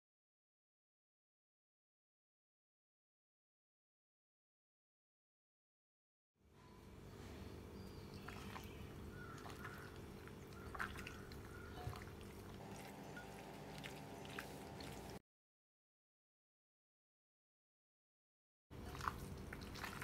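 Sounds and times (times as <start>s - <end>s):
steady low hum: 6.6s - 15.2s
wet squelching of raw chicken: 8.1s - 15.2s, 18.8s - 20.0s.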